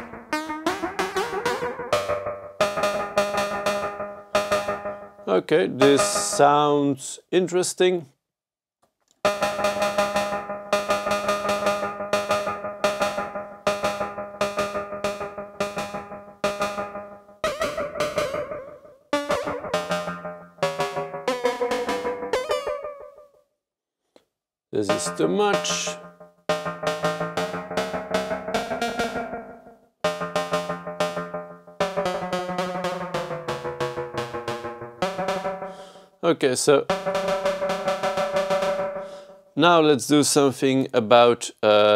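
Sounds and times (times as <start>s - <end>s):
synthesizer percussive hits: 0.0s - 6.7s, 9.2s - 23.3s, 24.8s - 39.8s
steady pitched synth drone: 24.9s - 36.0s.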